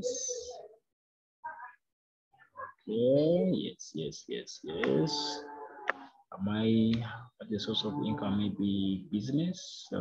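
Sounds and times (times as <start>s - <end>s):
man speaking: 2.8s - 5.5s, 6.3s - 10.0s.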